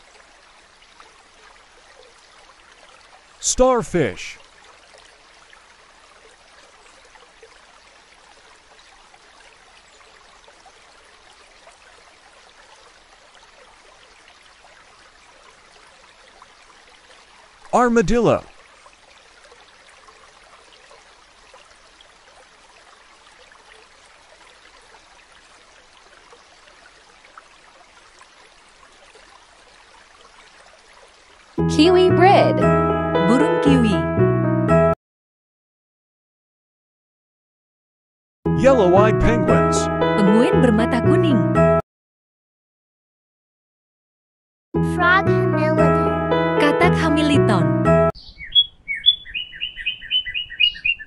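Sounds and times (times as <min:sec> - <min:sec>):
faint natural ambience hiss: 0:00.0 - 0:31.6
trickling water: 0:00.0 - 0:31.6.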